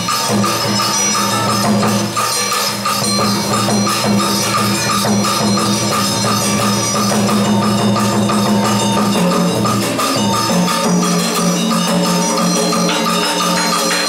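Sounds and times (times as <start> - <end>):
tapping percussion beat: 0.0 - 14.0
held low notes: 8.4 - 14.0.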